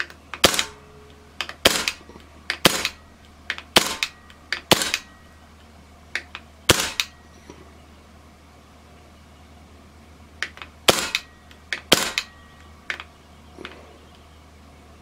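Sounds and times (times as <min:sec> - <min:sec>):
silenced air rifle shots: 0:00.0 - 0:05.1, 0:06.7 - 0:07.2, 0:10.8 - 0:12.4.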